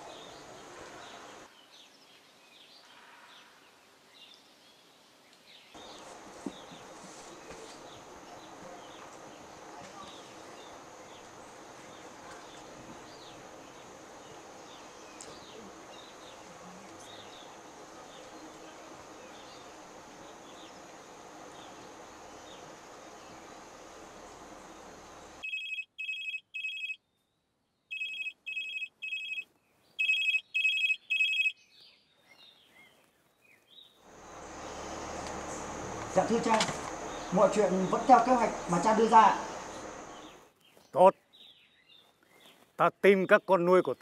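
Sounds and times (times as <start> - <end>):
phone ringtone beeps: 25.4 - 27.0, 27.9 - 29.4, 30.0 - 31.6
scattered chirps: 30.0 - 31.5
high jungle drone: 34.1 - 40.4.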